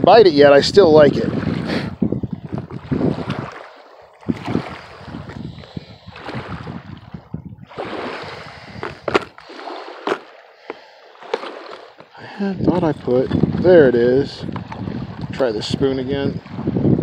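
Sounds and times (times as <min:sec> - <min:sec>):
wind buffeting microphone: 0:00.0 - 0:10.2, 0:11.3 - 0:17.0.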